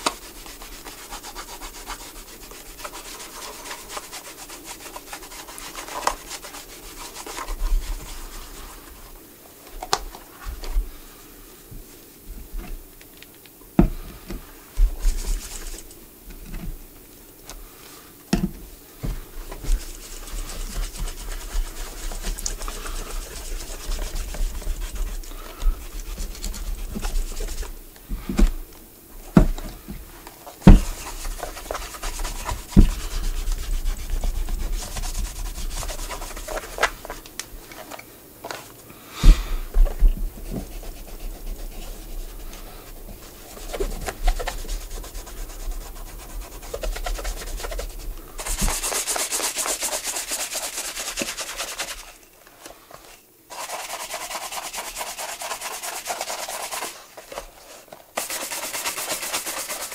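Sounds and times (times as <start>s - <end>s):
brush scrubbing leather shoe: 0.0s - 9.2s, 14.7s - 16.0s, 19.1s - 28.7s, 29.3s - 37.2s, 39.2s - 52.2s, 53.1s - 59.9s.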